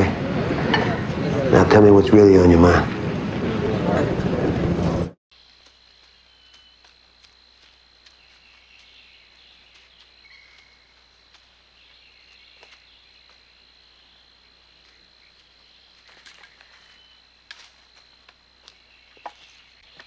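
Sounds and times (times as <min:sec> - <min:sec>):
footsteps through undergrowth: 0:05.3 - 0:20.0
high insect drone: 0:05.3 - 0:20.0.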